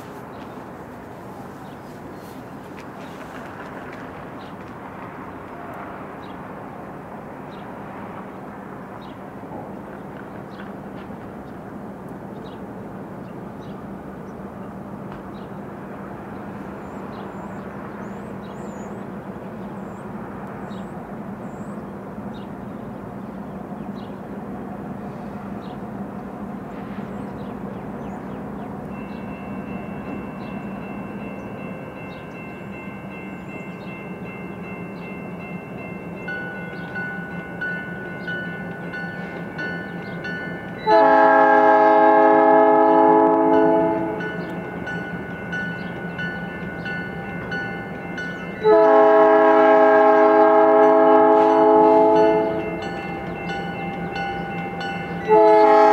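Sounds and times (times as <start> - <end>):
diesel locomotive engine rumble: 0.0 - 55.9
locomotive air horn: 40.8 - 44.2, 48.6 - 52.7, 55.3 - 55.9
level-crossing bell ringing: 52.2 - 55.3.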